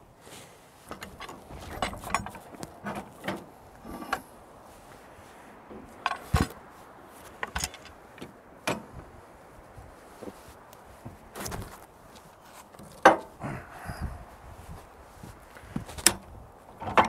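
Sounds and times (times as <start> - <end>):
metal clamp clanking: 0.9 - 4.2, 6.0 - 6.6, 7.4 - 8.0.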